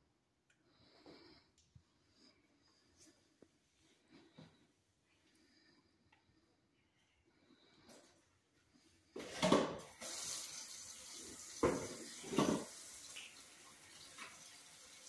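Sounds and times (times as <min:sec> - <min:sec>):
water running into metal sink: 0:09.9 - 0:15.0.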